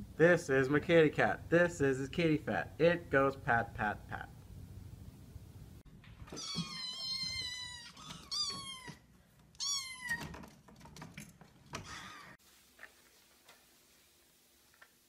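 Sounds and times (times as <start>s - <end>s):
kittens meowing: 6.4s - 9.0s.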